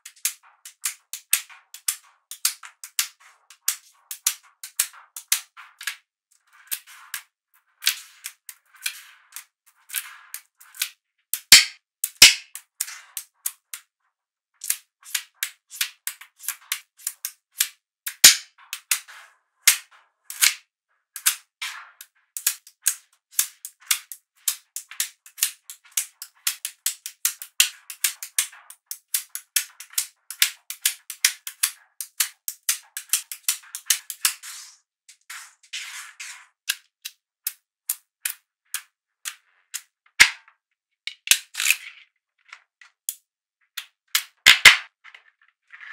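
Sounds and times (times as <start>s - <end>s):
magnetic balls clicking together: 0.0s - 6.0s, 6.6s - 13.9s, 14.6s - 34.4s, 36.6s - 45.3s.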